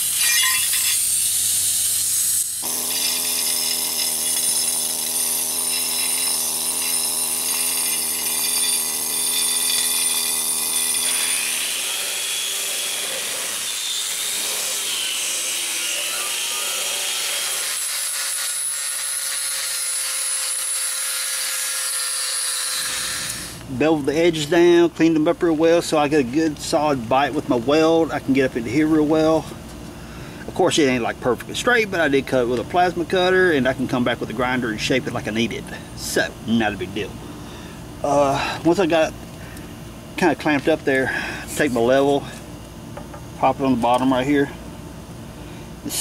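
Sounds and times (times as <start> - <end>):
hissing tool: 0.0 - 23.7
angle grinder grinding metal: 0.0 - 23.8, 40.2 - 42.4.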